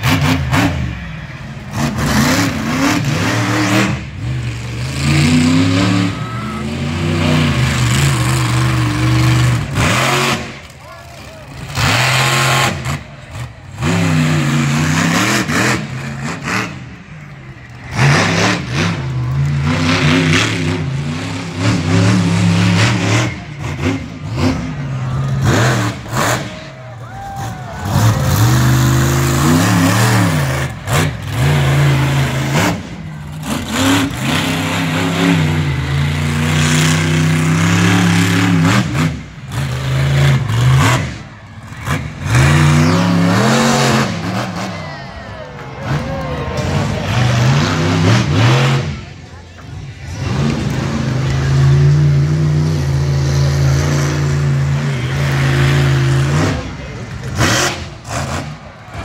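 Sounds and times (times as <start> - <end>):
truck engine revving hard: 0.0 - 59.0.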